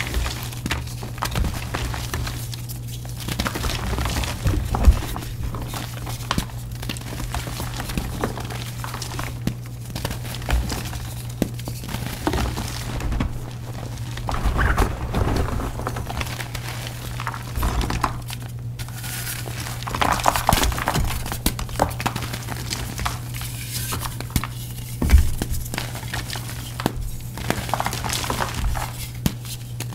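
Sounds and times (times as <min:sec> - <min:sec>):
steady low hum: 0:00.0 - 0:23.6
chalk crunching and crumbling: 0:00.0 - 0:24.8
soft thuds: 0:12.2 - 0:18.2.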